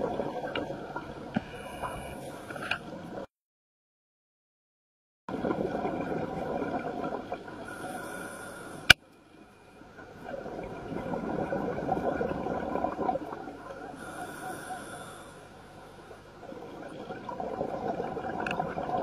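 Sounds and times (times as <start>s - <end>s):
exhaled bubbles burbling: 5.3s - 7.8s, 10.2s - 14.1s, 16.4s - 19.0s
regulator inhale hiss: 7.6s - 9.0s, 14.0s - 15.6s.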